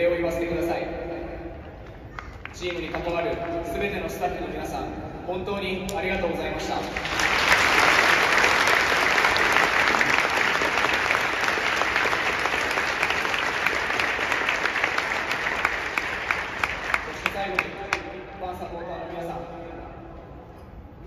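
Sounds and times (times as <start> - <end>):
stadium crowd applauding: 1.8 - 4.3, 6.6 - 18.2.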